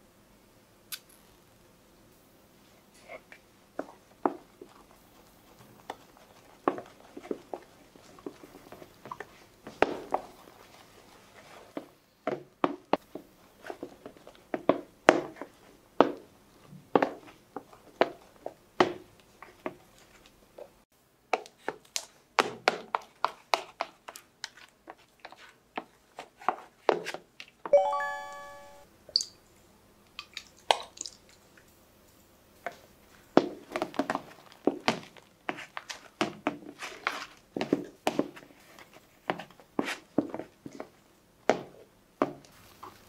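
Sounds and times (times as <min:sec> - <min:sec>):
spatula stirring thick mixture: 0:03.0 - 0:12.0, 0:21.3 - 0:27.3, 0:33.5 - 0:43.0
brief ringing ping: 0:27.8 - 0:28.8.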